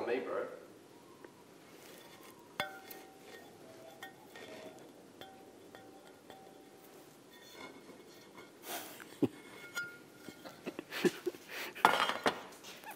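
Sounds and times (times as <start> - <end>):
ringing clinks: 9.5 - 10.6.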